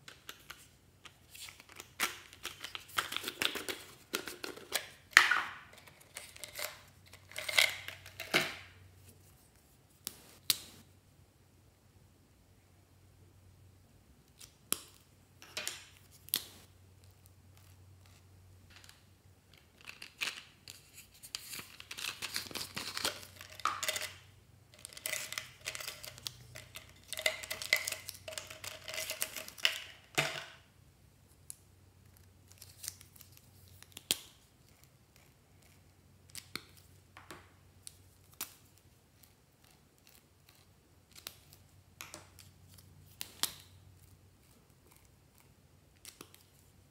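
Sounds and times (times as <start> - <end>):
plastic markers clattering: 0.0 - 8.7, 17.0 - 30.6.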